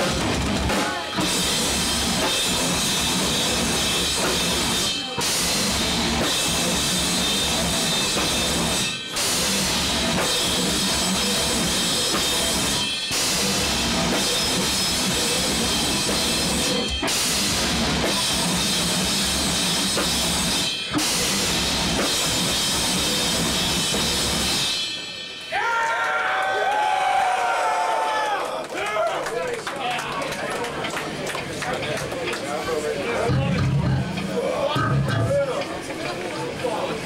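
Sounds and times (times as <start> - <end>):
death metal band playing live: 0.0 - 25.6, 33.2 - 36.0
drum kit: 0.0 - 25.8, 33.2 - 36.1.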